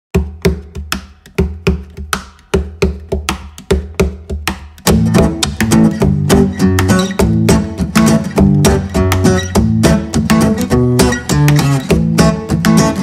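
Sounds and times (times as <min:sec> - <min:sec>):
percussive beat over bass: 0:00.1 - 0:13.0
strummed guitar: 0:04.8 - 0:13.0.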